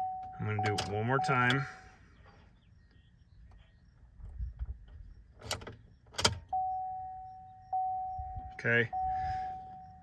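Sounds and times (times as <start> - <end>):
instrument cluster chime tone: 6.6 - 10.0.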